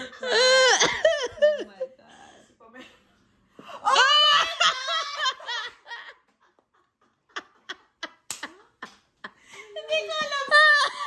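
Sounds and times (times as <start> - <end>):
woman laughing loudly: 0.0 - 1.9, 3.8 - 6.3.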